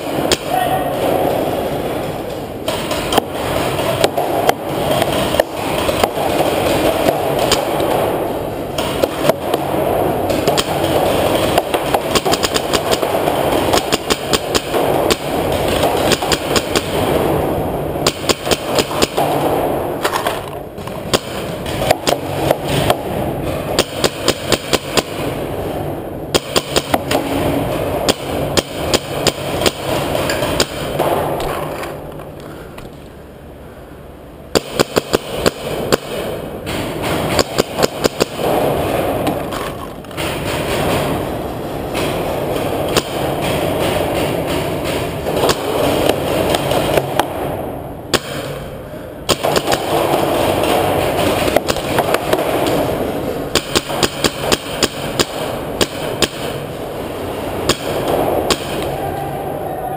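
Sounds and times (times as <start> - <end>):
paintball markers firing: 2.7 - 8.2, 8.8 - 17.4, 18.0 - 25.4, 26.4 - 33.0, 34.5 - 41.2, 49.3 - 56.7.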